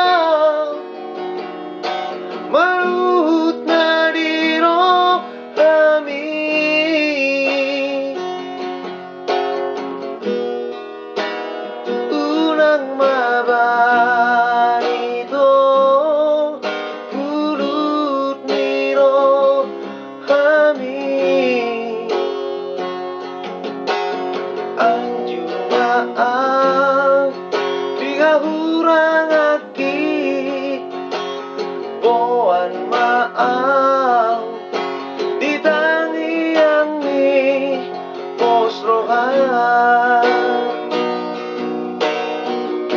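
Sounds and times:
man singing: 0.0s - 1.0s, 2.4s - 8.4s, 11.8s - 22.8s, 24.6s - 41.1s
acoustic guitar strumming: 0.0s - 42.9s.

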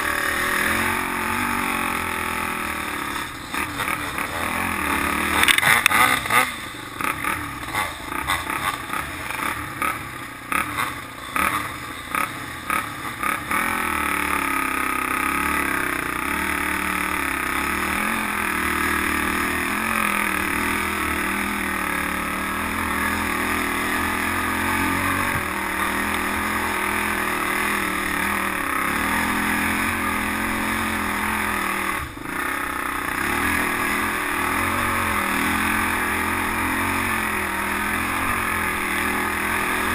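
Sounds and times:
off-road engines revving: 0.0s - 39.9s
quad engine droning: 0.0s - 39.9s.

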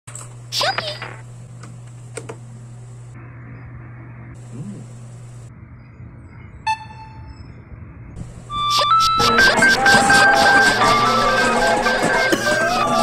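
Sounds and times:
steady low hum: 0.1s - 13.0s
short electronic beep: 6.7s - 7.5s, 8.5s - 11.2s
music: 8.5s - 13.0s.

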